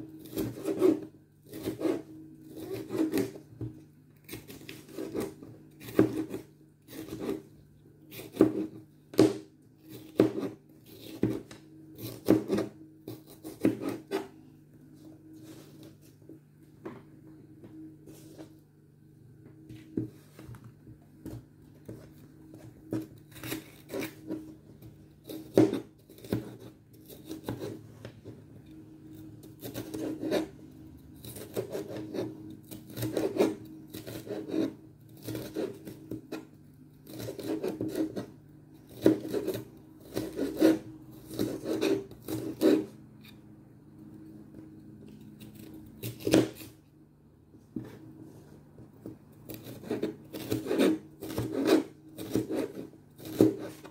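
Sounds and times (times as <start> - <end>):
knife chopping on cutting board: 2.6 - 7.4, 8.1 - 14.3, 25.2 - 27.8, 38.9 - 42.9, 45.6 - 46.7, 49.0 - 53.9.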